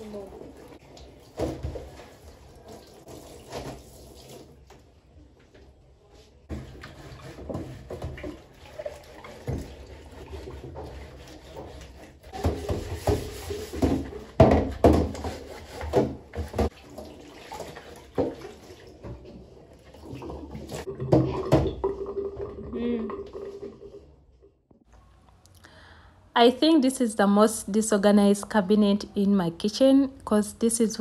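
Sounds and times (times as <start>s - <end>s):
water running in a sink: 0.0s - 4.7s, 6.7s - 13.9s, 16.4s - 24.0s.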